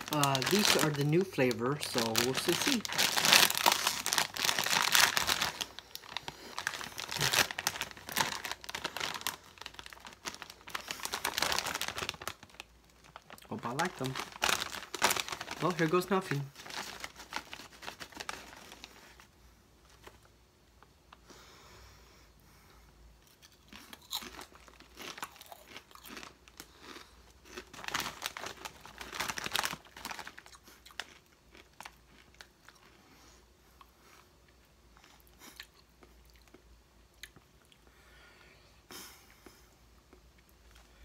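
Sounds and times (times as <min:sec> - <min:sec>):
person crunching potato chips: 0:00.0 - 0:19.2, 0:23.2 - 0:33.0.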